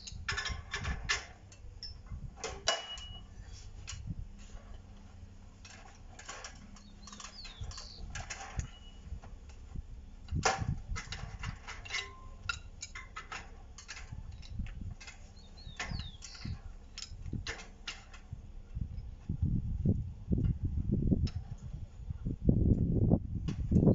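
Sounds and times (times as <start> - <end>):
metallic clicks and creaks: 0.0 - 9.6, 10.2 - 19.1.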